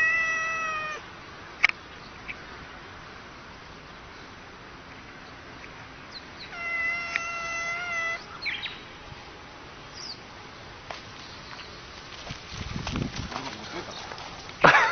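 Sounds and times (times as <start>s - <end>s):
cat yowling: 0.0s - 1.1s, 6.4s - 8.5s.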